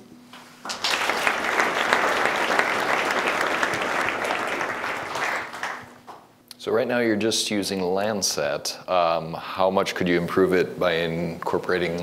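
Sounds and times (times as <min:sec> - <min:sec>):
audience applauding: 0:00.6 - 0:06.2.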